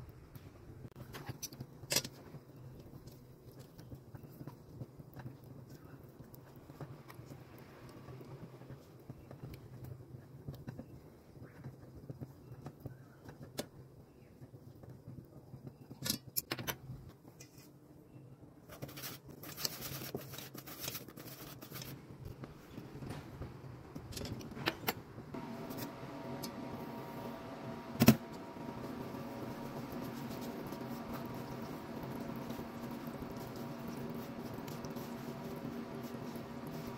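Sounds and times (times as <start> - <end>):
low steady hum: 22.1 - 36.9
spatula stirring chocolate in bowl: 28.3 - 36.9
whisk scraping metal bowl: 28.7 - 36.9.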